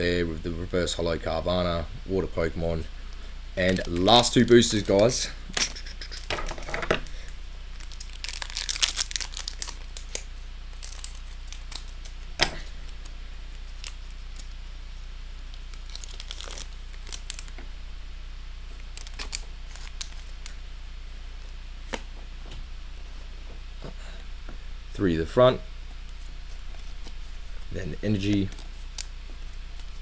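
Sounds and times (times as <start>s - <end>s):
foil wrapper tearing and crinkling: 3.6s - 5.1s, 7.8s - 12.2s, 13.7s - 14.6s, 15.5s - 17.6s, 18.9s - 20.5s.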